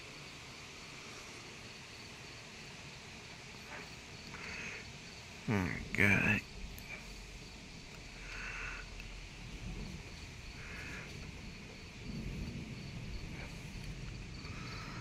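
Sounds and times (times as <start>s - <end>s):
night insects chirping: 0.0s - 15.0s
steady low hum: 3.1s - 15.0s
insect trilling bursts: 3.7s - 15.0s.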